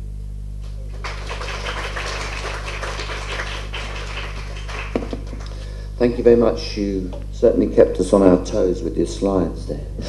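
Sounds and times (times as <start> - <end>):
low electrical hum: 0.0 - 10.0
audience applauding: 0.6 - 5.6.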